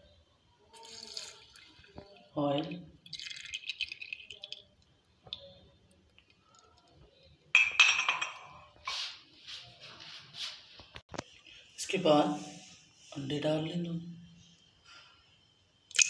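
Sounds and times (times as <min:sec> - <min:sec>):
glass and dishes clinking: 0:07.6 - 0:08.8.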